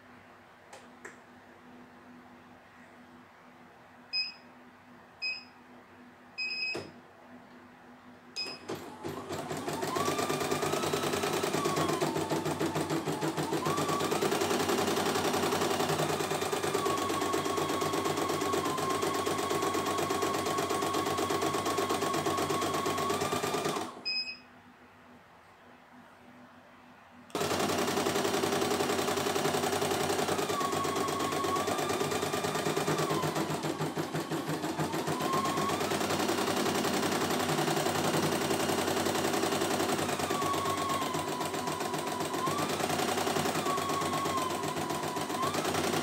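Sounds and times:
short beeps: 5.2s - 5.6s, 24.1s - 24.5s
embroidery machine stitching: 8.4s - 24.0s, 27.3s - 46.0s.

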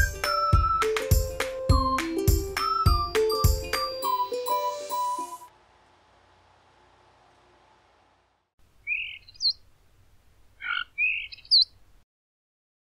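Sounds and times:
sparrow chirping: 2.6s - 4.8s, 8.8s - 9.7s, 10.5s - 11.8s.

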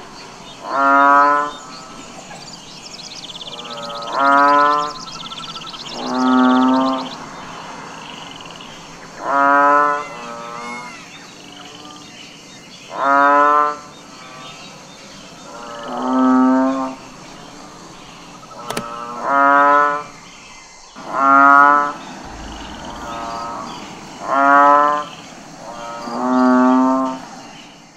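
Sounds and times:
bull mooing: 22.2s - 24.6s.

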